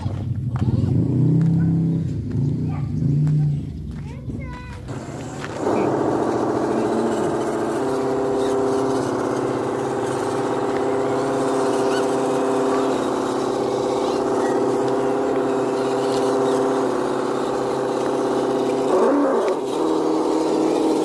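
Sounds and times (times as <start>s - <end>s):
tyres crawling over gravel: 3.2s - 21.0s
toy truck motors whining: 4.8s - 21.0s.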